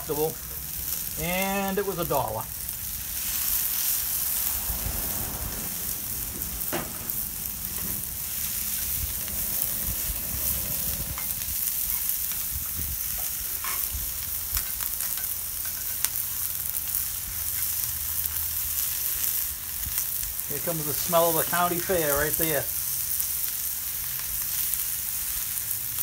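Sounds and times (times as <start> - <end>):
vegetables sizzling on a griddle: 0.0 - 26.0
metal spatula scraping: 5.6 - 16.2.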